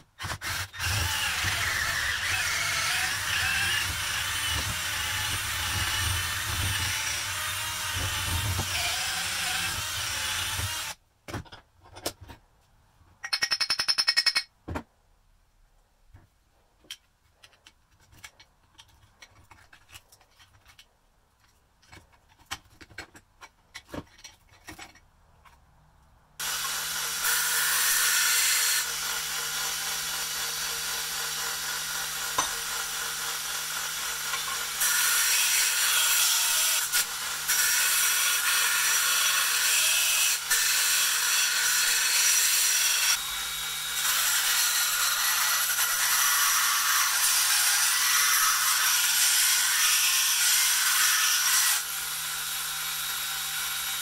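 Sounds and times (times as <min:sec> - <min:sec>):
belt grinder grinding steel: 0:00.2 - 0:11.0, 0:26.4 - 0:54.0.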